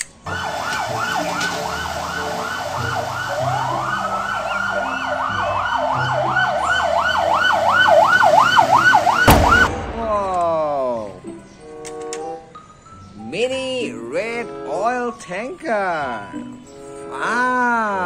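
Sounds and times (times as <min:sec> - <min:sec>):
wailing siren winding up and down: 0:00.3 - 0:09.7
yelping fire engine siren: 0:00.3 - 0:09.8.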